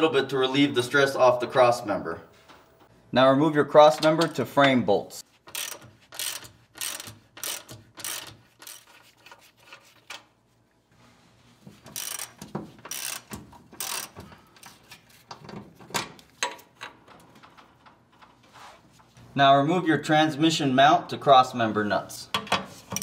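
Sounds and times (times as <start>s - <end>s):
socket ratchet clicking: 5.5s - 8.8s, 11.9s - 14.2s.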